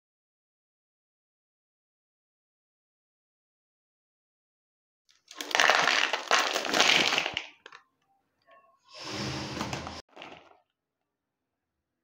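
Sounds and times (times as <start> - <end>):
snack packet crinkling: 5.1 - 7.8
snacks pouring into bowl: 5.2 - 7.8.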